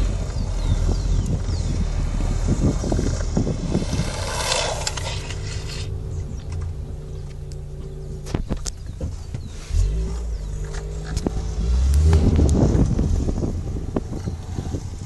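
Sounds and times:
wind buffeting microphone: 0.0 - 7.2, 8.2 - 15.0
longboard wheels rolling on asphalt: 0.0 - 15.0.

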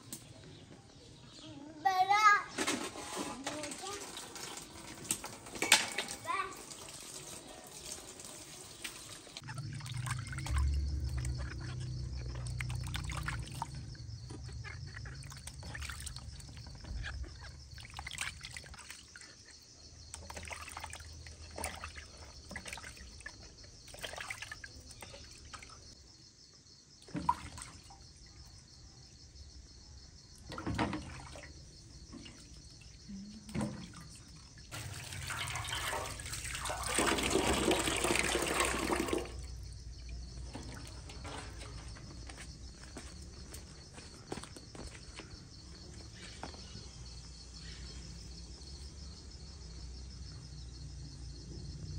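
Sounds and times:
water splashing in metal basin: 2.6 - 25.9, 27.0 - 28.2, 30.4 - 42.4
tap water running: 3.4 - 13.8, 34.7 - 39.5
low hum: 9.5 - 15.6.

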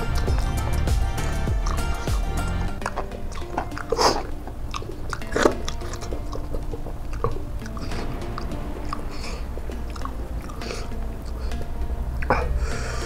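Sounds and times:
person chewing and eating: 1.3 - 11.6
wet mouth bursts: 1.6 - 11.6.

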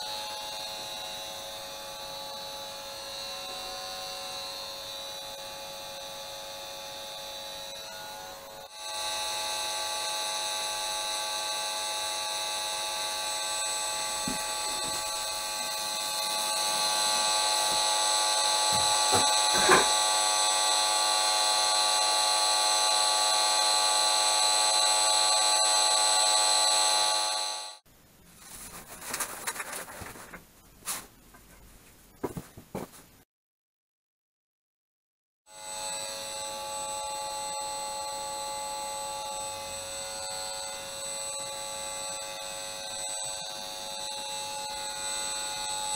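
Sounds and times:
multi-pitched electric buzz: 0.0 - 27.8, 35.5 - 45.9
rustling and handling noise: 28.2 - 33.2.

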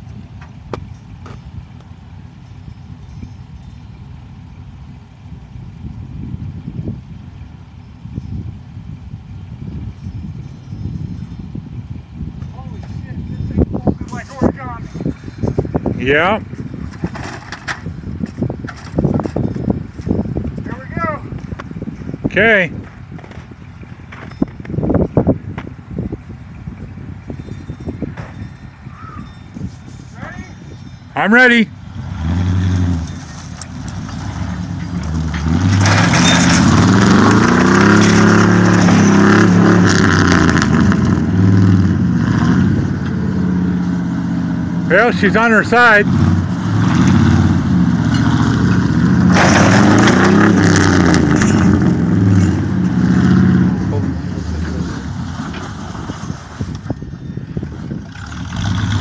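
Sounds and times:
pickup truck engine under load: 0.0 - 30.0, 30.7 - 59.0
wind on microphone: 5.4 - 31.1, 46.1 - 59.0
metal scraping and crunching: 13.8 - 21.8, 31.9 - 44.0, 45.3 - 59.0.

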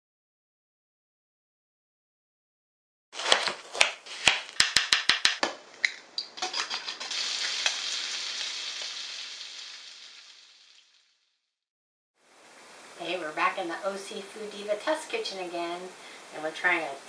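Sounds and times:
egg cracking into glass bowl: 3.8 - 9.0
bacon sizzling in a frying pan: 6.4 - 11.3.

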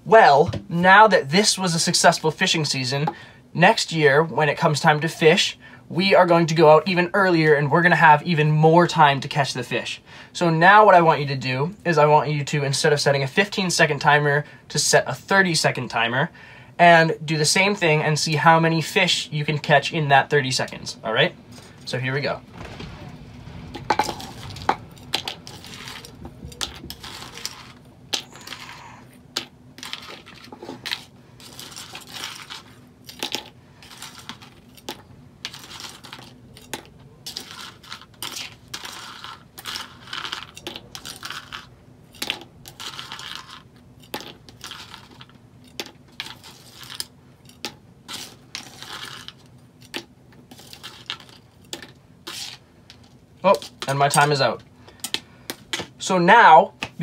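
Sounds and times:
spoon scooping crackers: 24.0 - 56.0.

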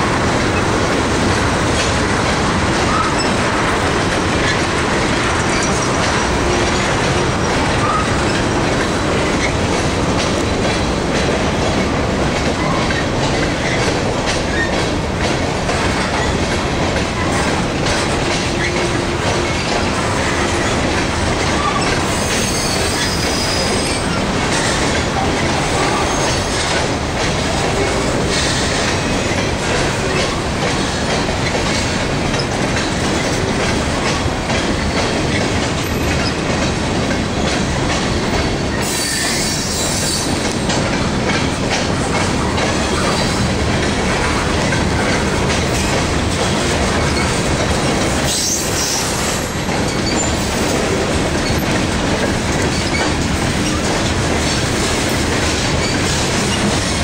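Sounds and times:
freight train cars rolling past: 0.0 - 57.0.

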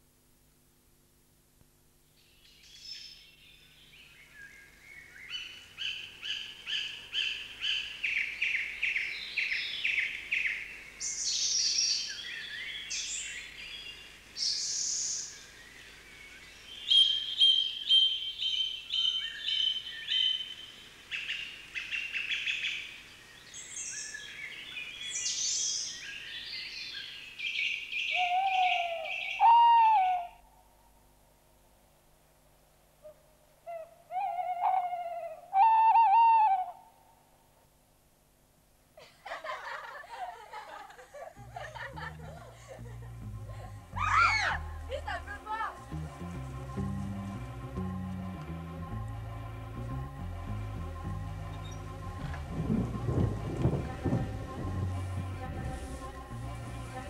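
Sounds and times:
birdsong trills: 2.2 - 30.2, 43.9 - 48.3, 50.6 - 53.5
owl hooting: 28.0 - 30.5, 33.0 - 37.1, 43.9 - 45.8.

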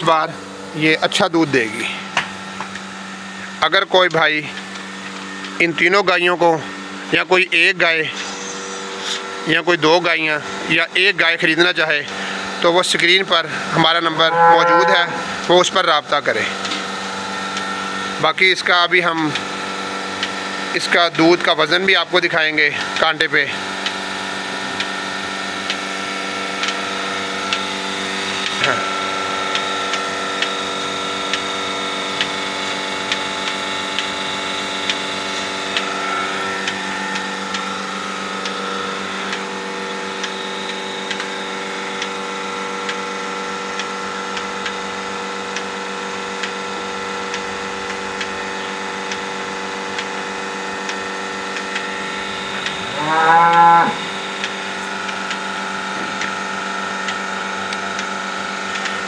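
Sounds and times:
milking machine humming: 0.1 - 59.0
cow mooing: 13.8 - 15.4, 52.8 - 54.1.

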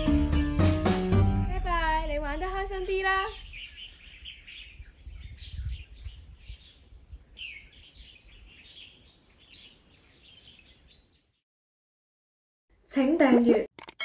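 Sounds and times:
low rumble: 1.3 - 4.1
small birds chirping: 2.4 - 11.4.

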